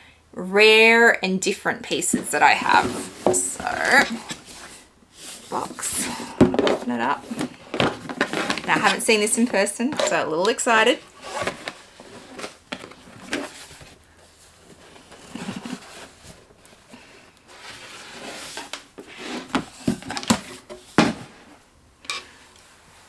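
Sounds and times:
cardboard box rustling: 2.1s - 21.4s.

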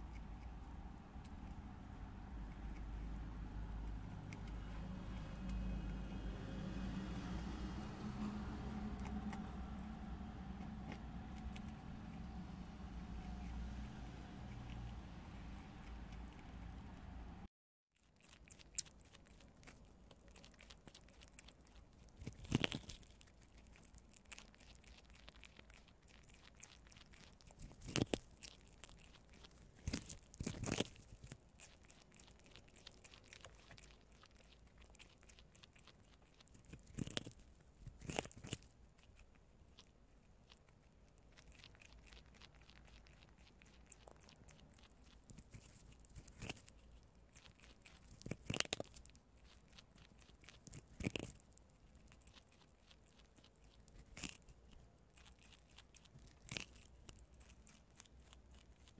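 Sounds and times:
prairie dogs crunching corn: 0.0s - 17.4s, 18.0s - 58.9s.

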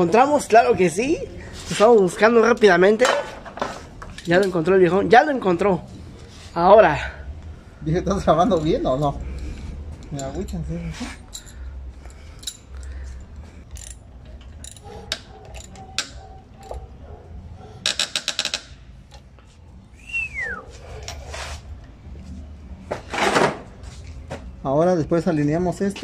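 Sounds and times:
metal tools clinking: 8.4s - 17.2s
socket ratchet clicking: 13.7s - 16.8s, 17.8s - 18.8s.

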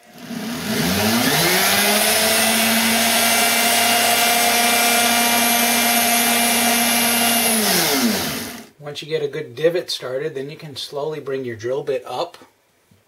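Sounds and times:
flex shaft grinder whine: 0.0s - 8.7s.

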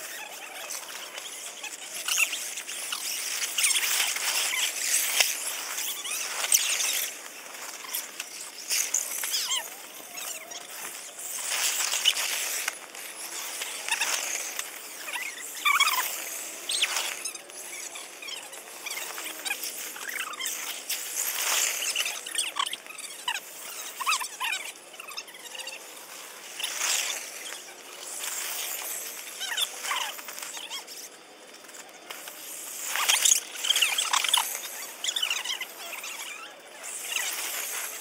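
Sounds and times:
squeaky crackles: 0.0s - 38.0s
footsteps crunching dry leaves: 0.1s - 24.0s, 25.4s - 30.9s.

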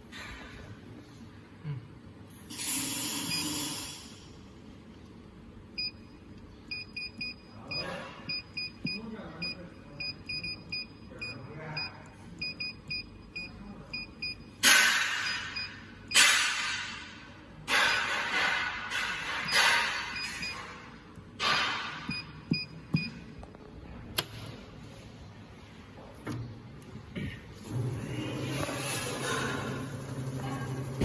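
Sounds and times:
electronic key-press beeps: 6.7s - 14.6s, 15.2s - 16.3s, 19.5s - 20.7s, 22.1s - 23.2s.

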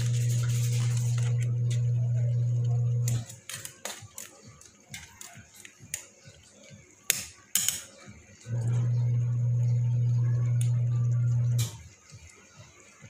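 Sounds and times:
metal spatula scraping a pan: 0.0s - 1.9s.

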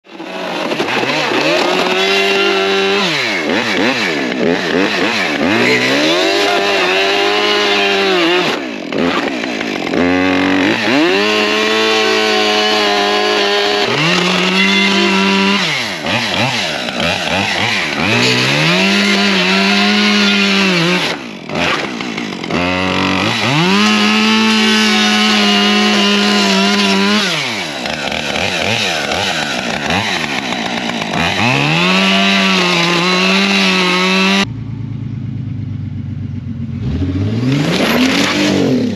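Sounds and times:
chainsaw revving: 0.1s - 34.5s, 36.8s - 38.9s
car engine running: 34.5s - 38.9s.

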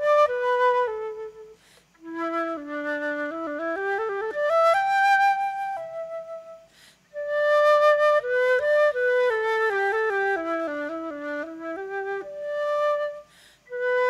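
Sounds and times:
flute playing a melody: 0.0s - 14.0s
short breath: 1.6s - 2.0s, 6.7s - 7.1s, 13.2s - 13.7s.

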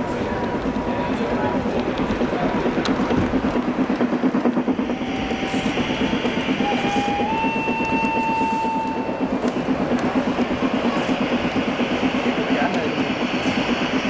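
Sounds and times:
model train rhythmic clatter: 0.0s - 14.0s
steady high tone: 4.6s - 11.4s.

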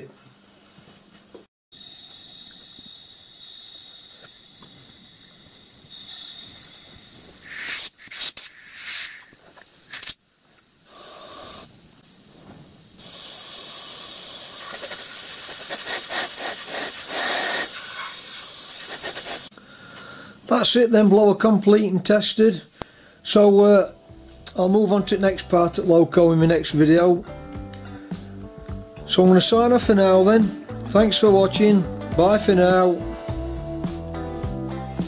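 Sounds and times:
compressed air hissing: 1.8s - 10.2s, 10.8s - 20.5s, 27.2s - 29.0s, 32.8s - 35.0s.

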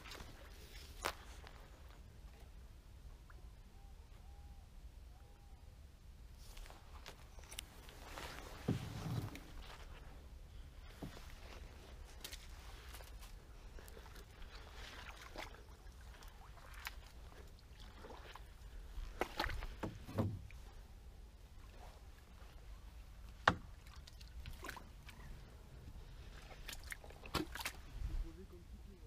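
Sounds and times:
branches rustling: 0.0s - 2.1s, 6.4s - 28.2s
boat knocks and scrapes: 7.4s - 10.1s, 19.2s - 20.6s.

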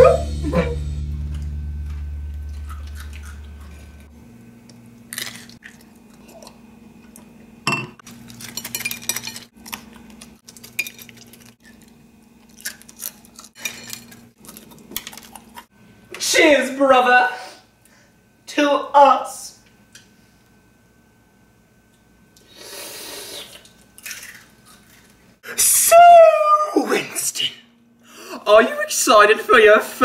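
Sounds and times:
music chord: 0.0s - 4.2s
person chewing: 1.2s - 7.4s, 9.6s - 15.7s
plates and glassware clinking: 7.7s - 9.5s.

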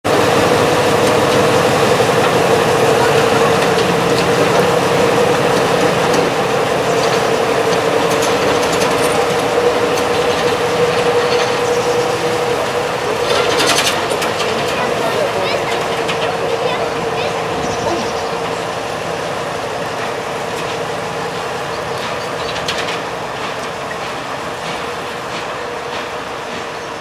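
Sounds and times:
diesel locomotive engine running: 0.0s - 27.0s.

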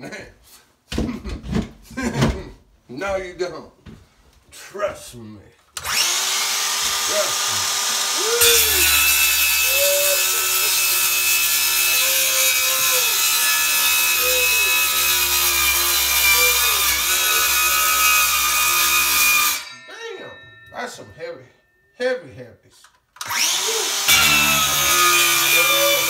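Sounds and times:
circular saw cutting drywall: 5.8s - 19.7s, 23.2s - 26.0s.

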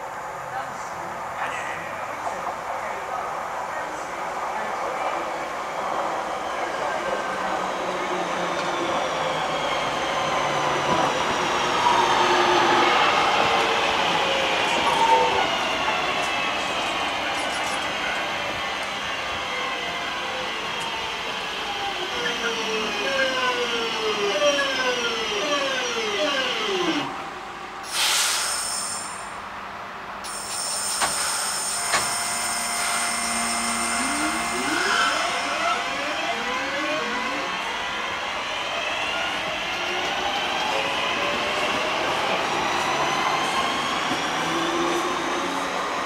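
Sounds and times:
loud hiss with high whine: 27.8s - 29.4s, 30.2s - 34.6s
train traction motors whining: 30.2s - 40.8s.

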